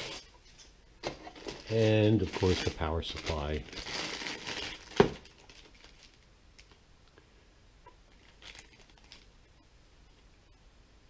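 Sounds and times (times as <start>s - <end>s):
plastic wrapping crinkling: 0.0s - 6.8s, 8.0s - 9.4s.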